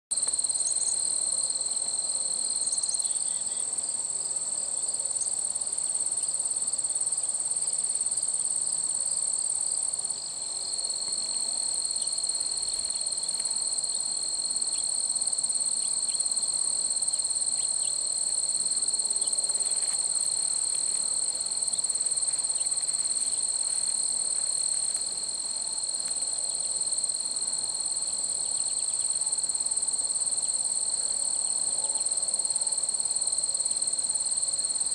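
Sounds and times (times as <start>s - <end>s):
high-pitched insect trilling: 0.2s - 3.8s, 10.8s - 34.9s.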